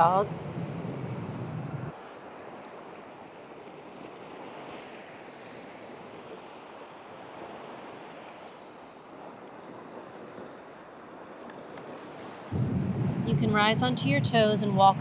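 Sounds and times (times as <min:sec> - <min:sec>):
soft rushing noise: 0:12.5 - 0:15.0.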